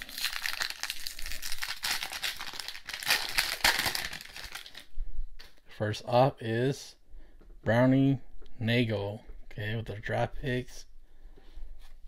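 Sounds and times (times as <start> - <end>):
foil wrapper crinkling and tearing: 0.0 - 4.9.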